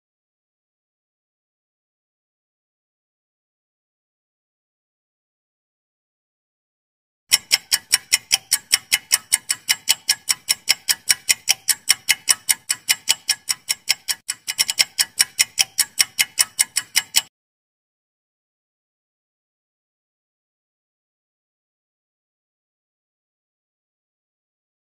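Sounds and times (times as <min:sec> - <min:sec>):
clock ticking: 0:07.3 - 0:17.3.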